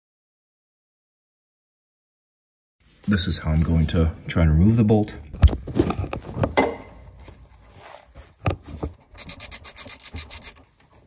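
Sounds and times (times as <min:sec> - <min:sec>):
metal scraping: 0:09.1 - 0:10.7
ratchet clicking: 0:09.2 - 0:10.6.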